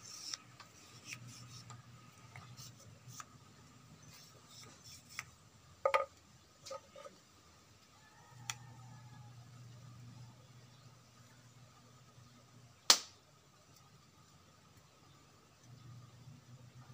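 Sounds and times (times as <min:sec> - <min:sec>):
bamboo tubes clicking and knocking: 0:05.1 - 0:07.2.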